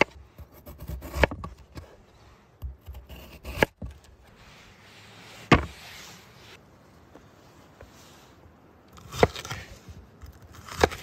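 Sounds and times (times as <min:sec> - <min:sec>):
knife cutting potato: 0:00.0 - 0:01.9, 0:02.6 - 0:03.9, 0:08.9 - 0:11.0.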